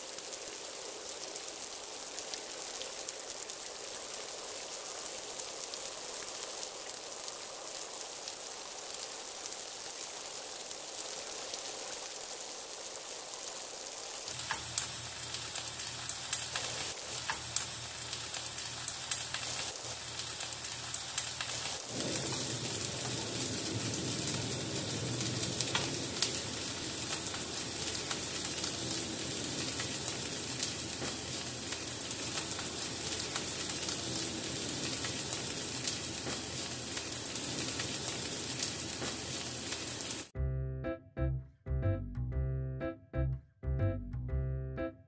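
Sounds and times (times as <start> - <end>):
patties sizzling in oil: 0.0 - 40.4
keyboard background music: 40.4 - 45.0.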